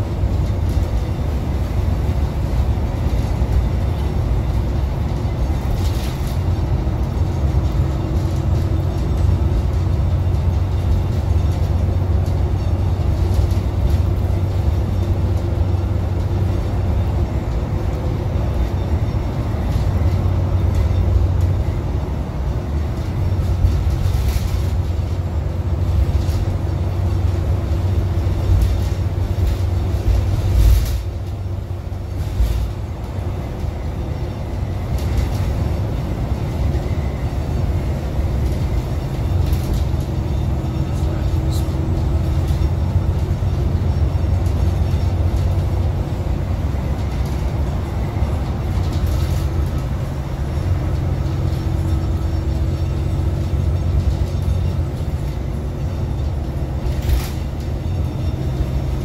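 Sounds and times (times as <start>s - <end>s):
bus engine drone: 0.0s - 59.0s
road noise: 0.0s - 59.0s
rattles: 41.0s - 58.9s.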